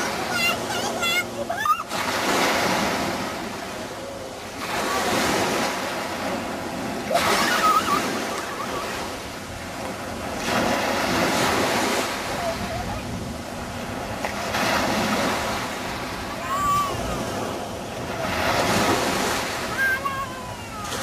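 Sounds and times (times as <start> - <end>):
sea waves: 0.0 - 21.0
wind on microphone: 2.3 - 21.0.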